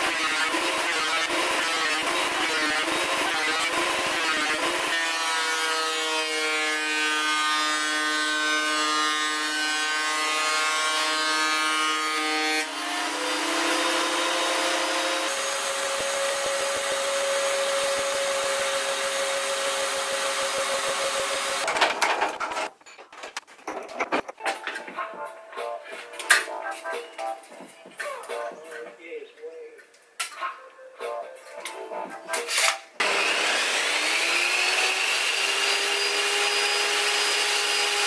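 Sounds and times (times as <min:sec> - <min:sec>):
thickness planer cutting wood: 0:00.0 - 0:21.7, 0:32.5 - 0:38.0
wooden knocks and clatters: 0:21.7 - 0:25.0.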